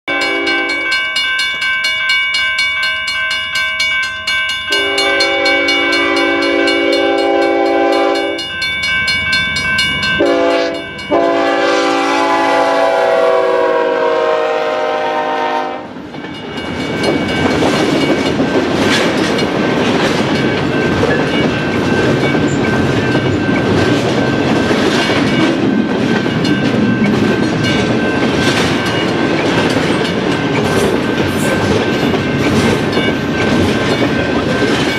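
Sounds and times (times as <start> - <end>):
train air horn blasts: 0.1 - 0.9, 4.7 - 8.4, 10.2 - 16.0
train rumbling by: 4.6 - 34.9
wheels clattering over rails: 16.2 - 34.9.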